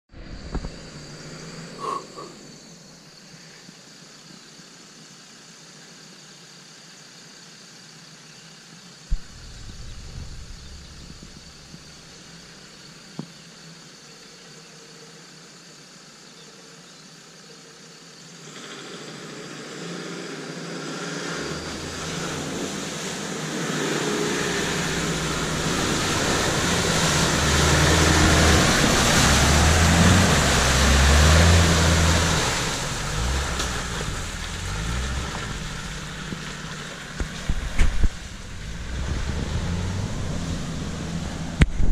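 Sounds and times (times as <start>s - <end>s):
diesel engine approaching: 9.1s - 12.7s, 18.5s - 41.9s
mud and water splashing: 21.0s - 41.9s.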